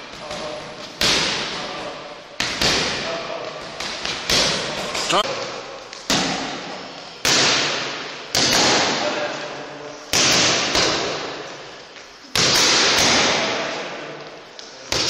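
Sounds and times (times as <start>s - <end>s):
boxing gloves hitting mitts: 0.0s - 5.0s, 6.0s - 9.2s, 10.1s - 11.4s, 12.2s - 14.0s.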